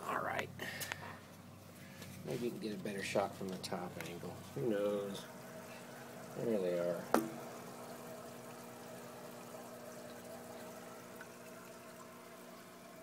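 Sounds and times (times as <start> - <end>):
pump hum: 0.5 - 13.0
water running and bubbling: 3.7 - 13.0.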